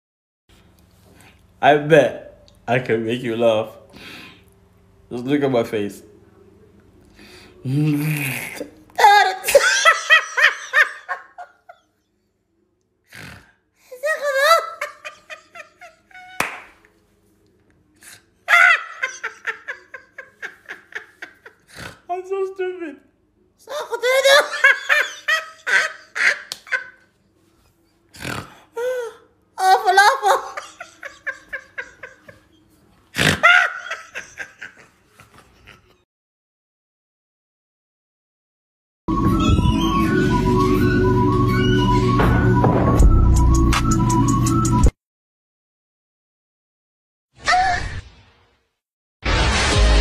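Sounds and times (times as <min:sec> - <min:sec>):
man laughing: 0:09.0 - 0:11.8, 0:13.9 - 0:16.4, 0:18.5 - 0:21.8, 0:23.6 - 0:27.0, 0:29.6 - 0:36.0.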